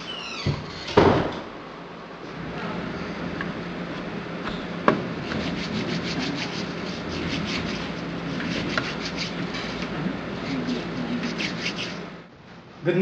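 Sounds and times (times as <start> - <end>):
hands rubbing together: 5.2 - 12.1.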